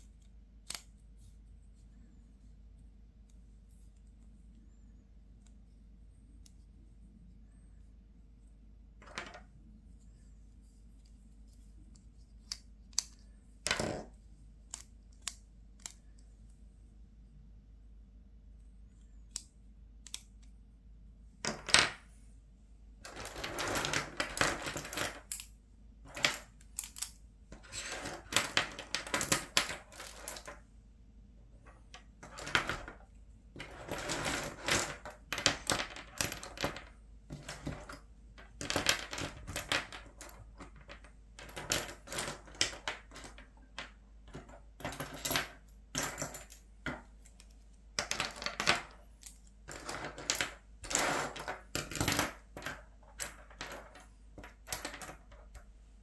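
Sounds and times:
plastic pens clattering on table: 0:33.6 - 0:55.6.

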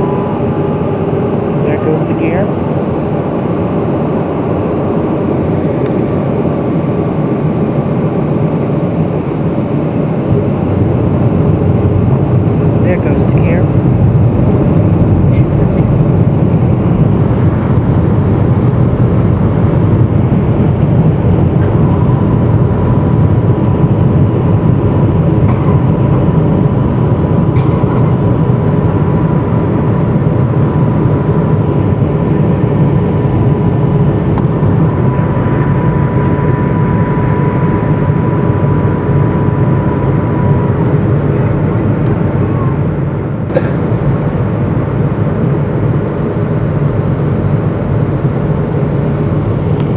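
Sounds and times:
steady high tone: 0:00.0 - 0:06.4, 0:14.3 - 0:43.7
aircraft cabin engine roar: 0:00.0 - 0:49.9.

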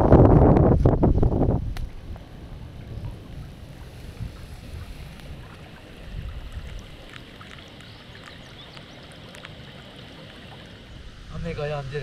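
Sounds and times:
wind buffeting microphone: 0:00.0 - 0:07.2
raindrops ticking close by: 0:05.1 - 0:10.9
heavy rain hissing: 0:09.0 - 0:12.0.

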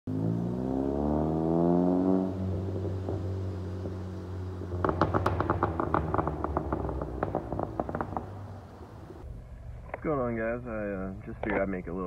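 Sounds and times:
car engine revving: 0:00.1 - 0:09.2
sharp crackles and pops: 0:04.6 - 0:09.2.

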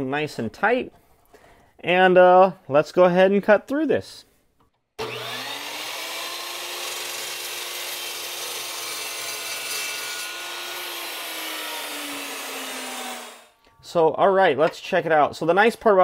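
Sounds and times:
chop saw cutting metal: 0:05.0 - 0:13.6.

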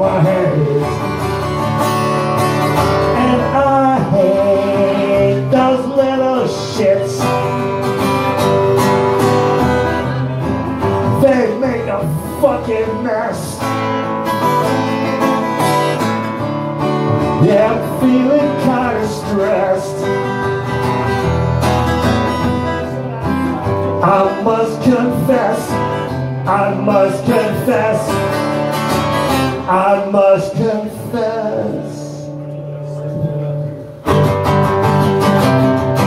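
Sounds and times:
man singing into microphone: 0:00.0 - 0:01.2, 0:02.9 - 0:07.7, 0:11.0 - 0:13.8, 0:17.3 - 0:20.5, 0:24.0 - 0:28.5, 0:29.3 - 0:32.4
acoustic guitar strumming: 0:00.0 - 0:36.0.

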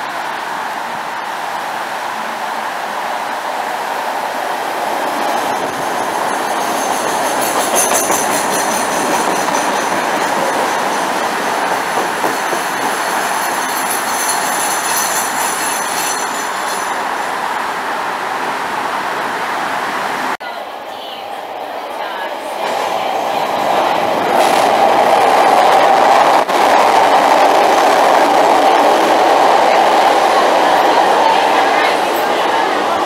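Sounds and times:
train wheels rumbling on rail: 0:03.6 - 0:19.0, 0:22.4 - 0:33.0.

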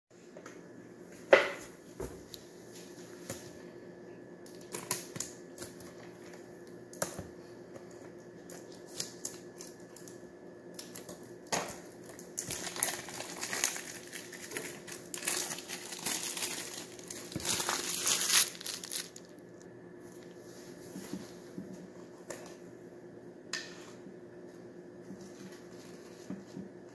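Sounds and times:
plastic wrap crinkling: 0:10.8 - 0:19.6.

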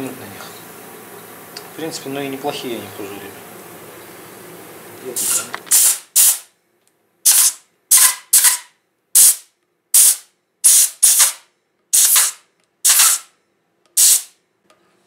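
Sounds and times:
grease gun hissing spurts: 0:05.2 - 0:06.5, 0:07.3 - 0:08.6, 0:09.2 - 0:09.4, 0:10.0 - 0:13.3, 0:14.0 - 0:14.4.

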